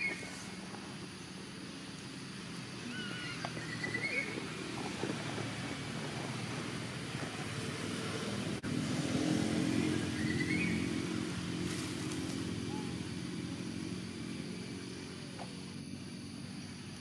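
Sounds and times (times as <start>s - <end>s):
motor vehicle engine humming: 0.0s - 17.0s
small bird chirping: 2.8s - 4.4s, 9.8s - 11.0s.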